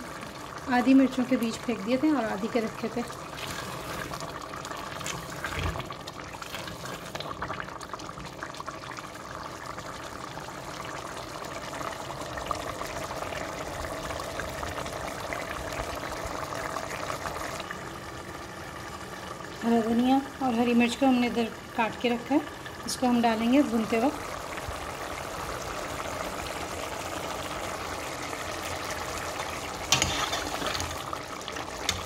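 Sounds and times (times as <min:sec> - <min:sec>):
stew bubbling in a pot: 0:00.0 - 0:32.0
spatula stirring: 0:03.3 - 0:07.4, 0:29.9 - 0:31.0.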